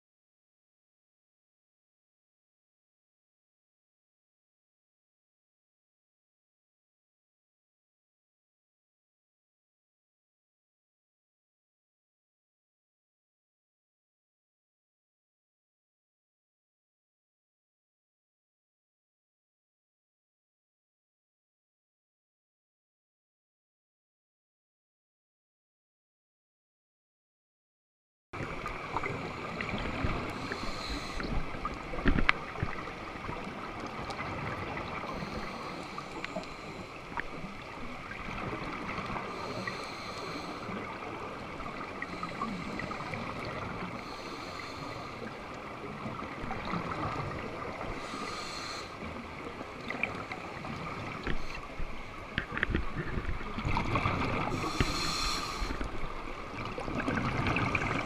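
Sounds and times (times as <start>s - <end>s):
regulator hiss: 54.6s - 55.8s
exhaled bubbles rushing: 56.5s - 58.0s.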